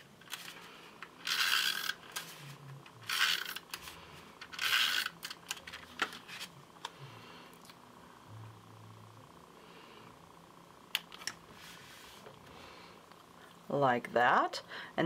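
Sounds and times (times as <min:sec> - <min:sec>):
tape runner on card: 0:00.2 - 0:06.5.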